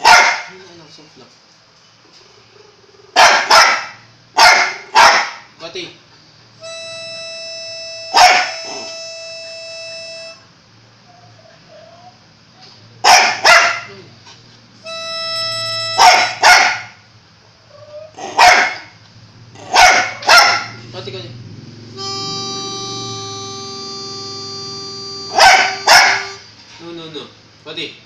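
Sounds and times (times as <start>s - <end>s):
dog barking sharply: 0.0s - 0.5s, 3.2s - 5.5s, 8.2s - 8.5s, 13.0s - 13.9s, 16.0s - 17.0s, 18.2s - 19.0s, 19.6s - 20.8s, 25.3s - 26.4s
harmonica notes: 6.5s - 10.6s, 14.7s - 16.8s, 21.8s - 26.6s.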